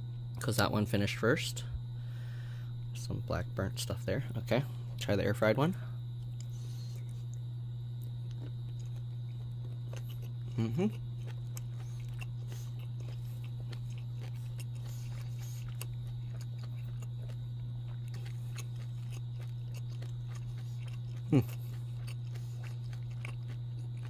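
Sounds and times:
steady low hum: 0.0 - 24.0
faint chewing: 6.2 - 24.0.

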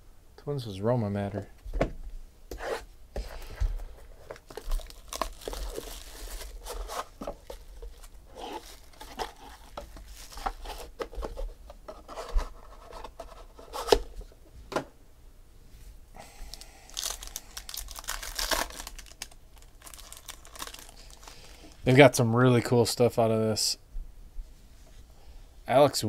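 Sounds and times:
cardboard rustling: 2.5 - 14.3
plastic wrap tearing and crinkling: 4.3 - 11.0, 16.5 - 21.8.

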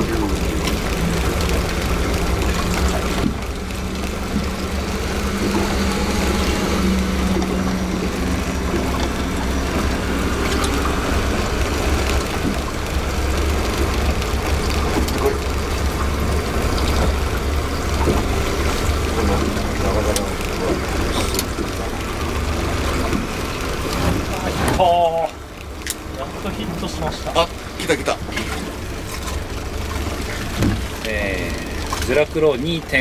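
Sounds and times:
outboard motor idling: 0.0 - 33.0.

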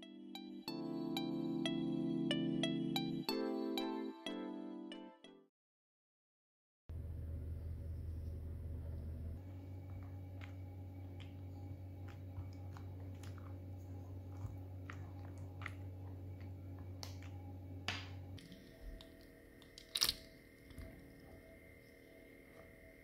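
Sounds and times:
steady low hum: 6.9 - 23.0.

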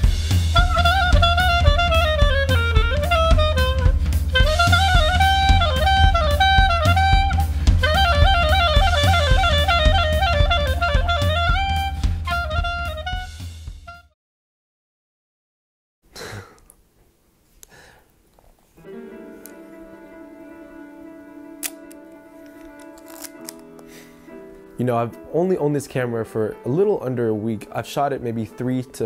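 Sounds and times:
background music with drum beat: 0.0 - 14.1.

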